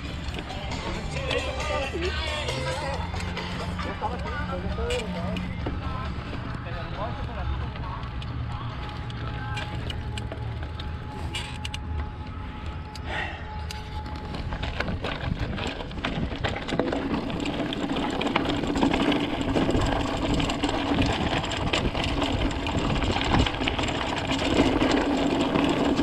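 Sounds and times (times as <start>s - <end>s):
bike chain and frame rattling: 0.0s - 26.0s
bike tyres crunching on gravel: 13.8s - 26.0s
wind rumbling on microphone: 13.8s - 26.0s.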